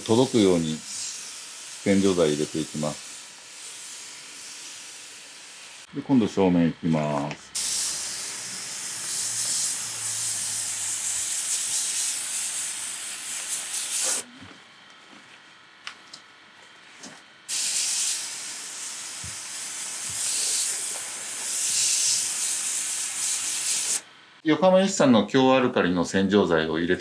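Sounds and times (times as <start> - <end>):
pressure washer spraying: 0.0 - 5.9, 7.6 - 14.3, 17.5 - 24.0.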